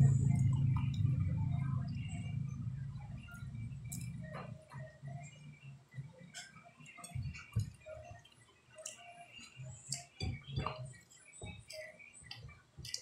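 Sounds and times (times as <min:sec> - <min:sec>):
fingers tapping on a plate: 0:08.8 - 0:13.0.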